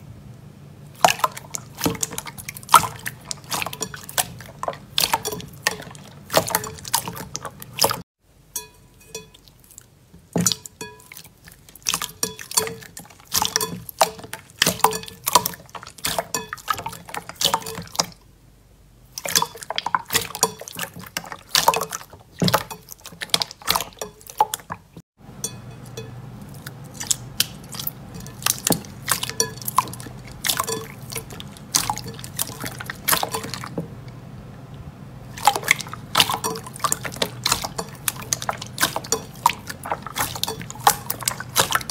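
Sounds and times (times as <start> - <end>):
slime squelching with pops: 10.2 - 18.2, 19.1 - 25.0, 26.4 - 33.8, 35.3 - 41.9.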